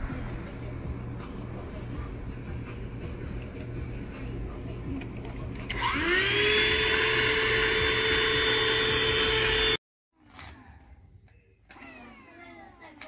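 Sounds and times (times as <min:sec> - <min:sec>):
handheld vacuum cleaner whining: 0:05.7 - 0:09.8.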